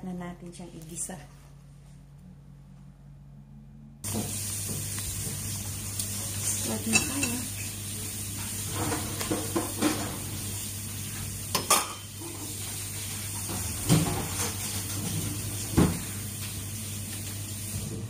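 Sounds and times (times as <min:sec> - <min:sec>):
gas burner hum and hiss: 0:04.0 - 0:18.0
kitchenware clattering: 0:06.6 - 0:07.7, 0:08.5 - 0:10.3, 0:11.5 - 0:12.6, 0:13.4 - 0:16.0.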